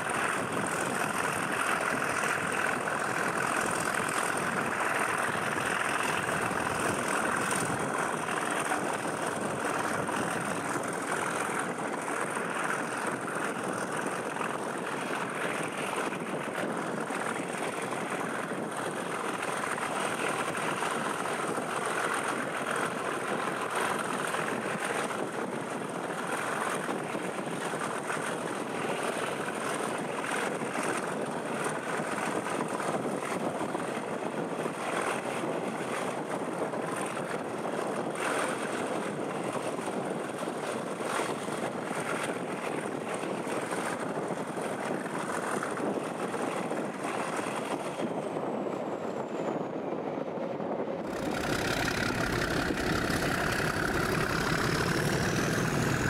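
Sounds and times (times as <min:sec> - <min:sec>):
train wheels on rails: 0:49.0 - 0:56.0
rushing air: 0:51.0 - 0:56.0.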